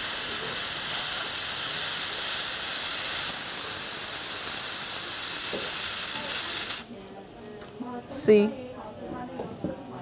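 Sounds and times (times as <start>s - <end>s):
compressed air hissing: 0.0s - 6.9s.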